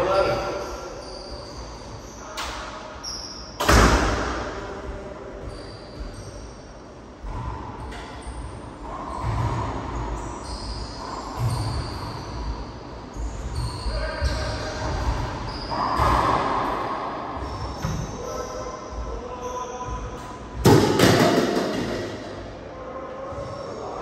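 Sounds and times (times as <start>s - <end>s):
racquetball ball cracking off walls: 20.6s - 22.3s.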